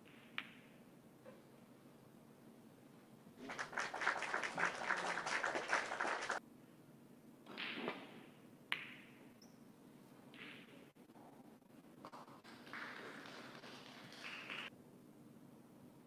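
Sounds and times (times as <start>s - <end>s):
audience applauding: 3.4s - 6.4s, 12.4s - 14.7s.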